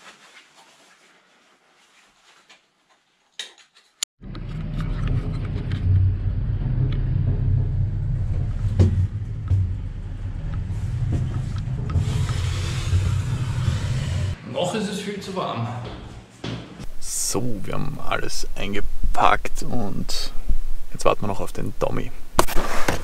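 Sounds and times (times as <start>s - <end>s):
car engine running: 4.2s - 14.4s
road rumble: 4.2s - 14.4s.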